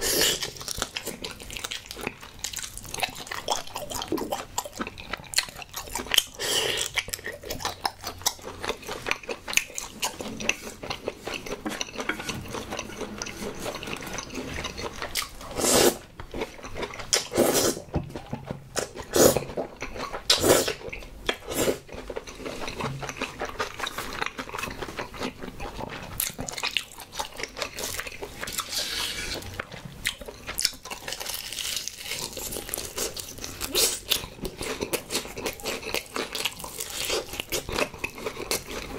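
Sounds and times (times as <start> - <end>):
wet chewing and biting: 0.0 - 38.9
slurping noodles: 15.5 - 16.0, 17.1 - 17.9, 19.1 - 19.5.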